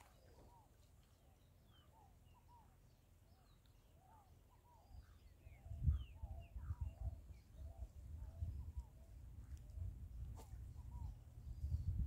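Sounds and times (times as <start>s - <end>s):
birds chirping: 0.0s - 12.0s
wind rumbling on microphone: 4.7s - 12.0s.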